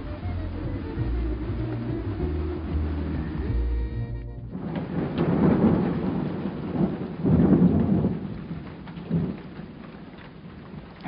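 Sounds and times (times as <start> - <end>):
rain falling: 0.0 - 11.0
rolling thunder: 4.5 - 11.0.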